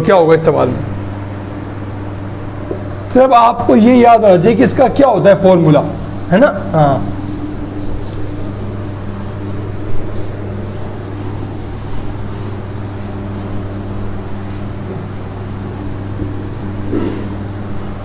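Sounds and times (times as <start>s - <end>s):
low electrical hum: 0.0s - 18.0s
duster rubbing a whiteboard: 2.5s - 18.0s.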